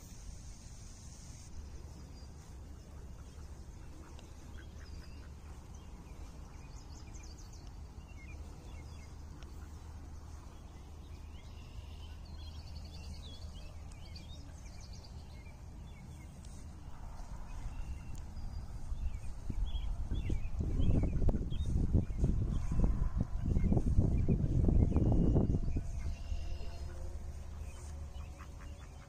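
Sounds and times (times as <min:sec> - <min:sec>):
small birds chirping: 0:00.0 - 0:29.0
steady low rumble: 0:00.0 - 0:29.0
ducks quacking: 0:02.7 - 0:06.6, 0:09.0 - 0:10.5, 0:26.0 - 0:29.0.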